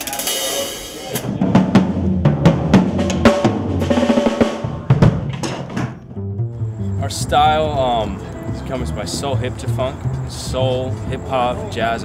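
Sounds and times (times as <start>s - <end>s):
low drum thuds: 1.2s - 6.8s.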